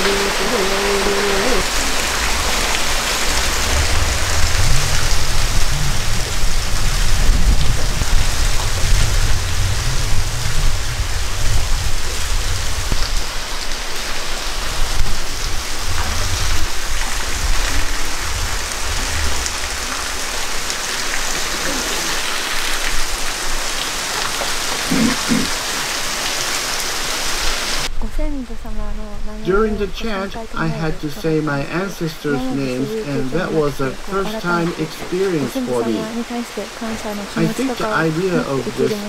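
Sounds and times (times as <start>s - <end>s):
waterfall roaring: 0.0s - 27.9s, 29.4s - 39.0s
low rumble: 1.0s - 13.6s.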